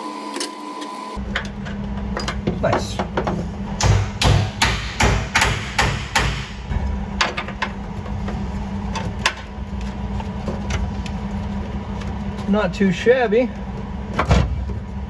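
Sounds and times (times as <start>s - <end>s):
steady low hum: 1.1s - 15.0s
hammer tapping on sheet metal: 3.8s - 6.6s.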